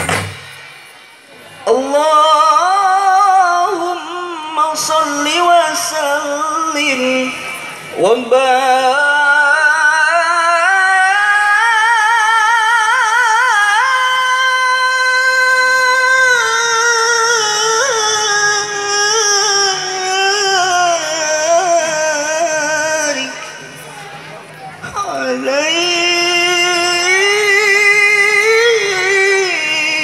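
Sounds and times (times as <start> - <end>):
person singing long notes: 8.0 - 23.6, 24.8 - 30.0.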